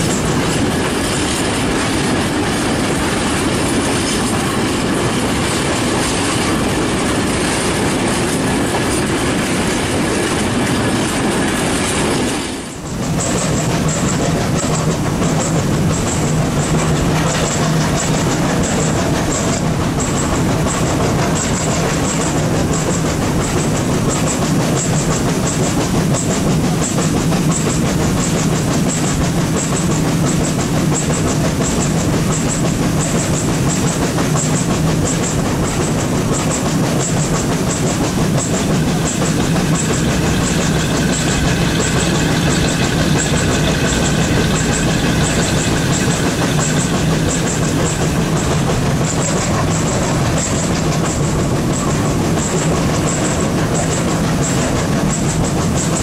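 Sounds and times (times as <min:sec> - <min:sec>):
model train running hum: 0:00.0 - 0:56.0
wheels clicking over track: 0:00.0 - 0:56.0
higher steady hum: 0:37.0 - 0:52.7.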